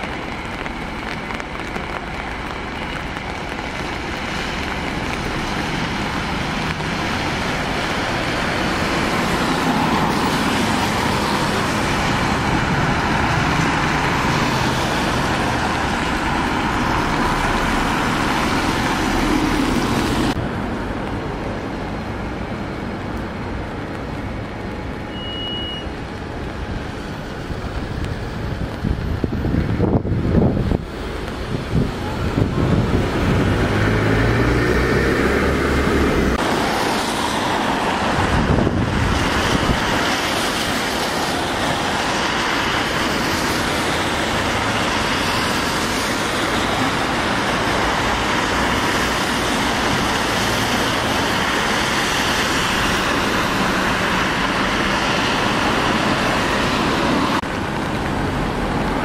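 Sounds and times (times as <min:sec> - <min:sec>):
traffic: 0:00.0 - 0:59.0
tyres hissing on wet road: 0:00.0 - 0:59.0
short high beep: 0:25.1 - 0:25.9.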